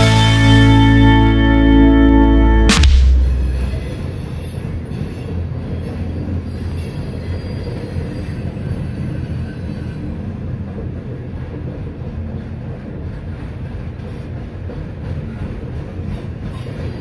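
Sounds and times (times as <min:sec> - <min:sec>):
freight train wheels rumbling on rail: 0:03.7 - 0:17.0.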